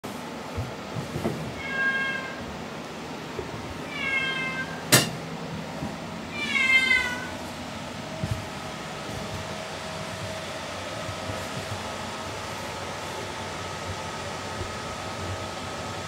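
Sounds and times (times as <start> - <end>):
cat meowing loudly: 1.5 - 2.4, 3.8 - 5.1, 6.3 - 7.4.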